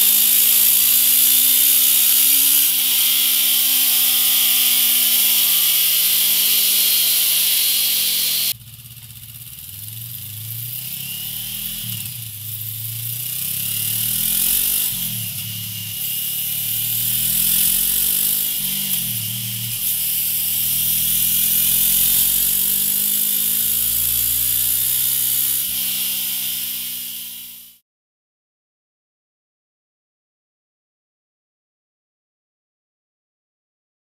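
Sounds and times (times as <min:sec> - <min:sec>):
tyre whirring on roller: 0:00.0 - 0:08.6, 0:09.8 - 0:27.8
motorcycle engine revving: 0:00.0 - 0:27.8.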